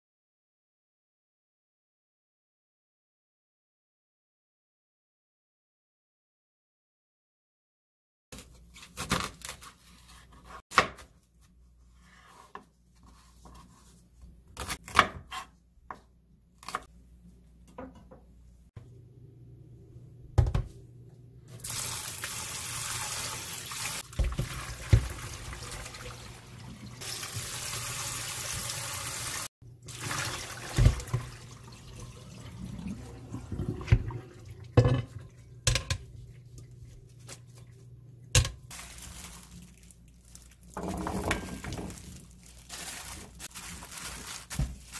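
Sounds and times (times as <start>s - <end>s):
bowl and radish cubes clattering: 40.6s - 42.3s.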